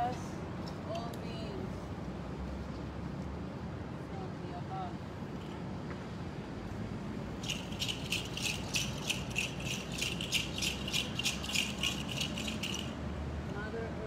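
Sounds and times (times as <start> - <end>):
hand rattle shaking: 7.4 - 13.0.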